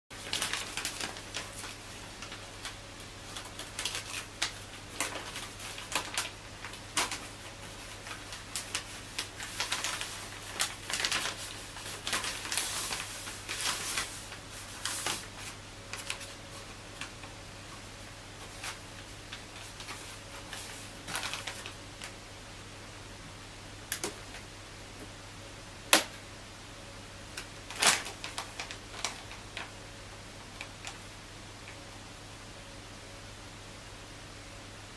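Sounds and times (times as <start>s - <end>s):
steady low hum: 0.1s - 34.9s
plastic bag crinkling: 0.2s - 16.4s, 18.5s - 22.1s, 27.7s - 29.7s.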